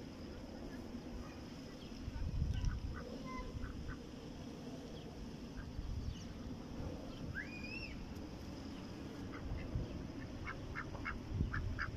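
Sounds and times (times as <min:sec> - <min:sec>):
wind rumble on microphone: 0:02.0 - 0:04.0, 0:09.3 - 0:11.9
ducks quacking: 0:09.3 - 0:11.9.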